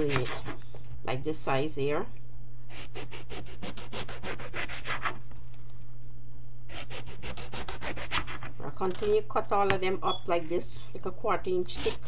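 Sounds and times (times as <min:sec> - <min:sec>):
knife sawing through eggplant: 0:00.0 - 0:00.6, 0:02.7 - 0:05.2, 0:06.7 - 0:08.6, 0:11.6 - 0:12.0
steady low hum: 0:00.0 - 0:12.0.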